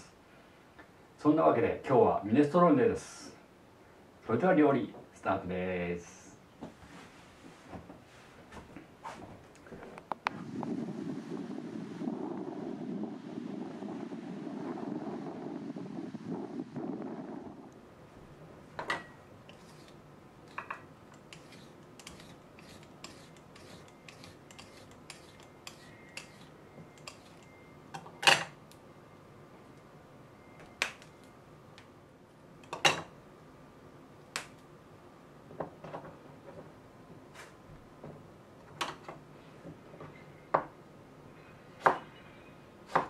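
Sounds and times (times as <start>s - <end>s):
peeler scraping asparagus: 19.5s - 27.5s.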